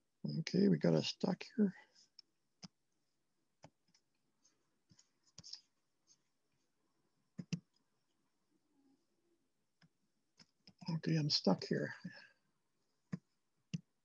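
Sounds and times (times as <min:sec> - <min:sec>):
computer mouse clicks: 0:07.4 - 0:07.7.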